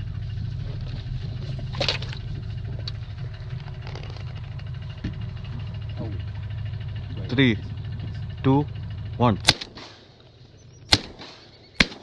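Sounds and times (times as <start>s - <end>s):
small boat motor humming: 0.0s - 9.5s.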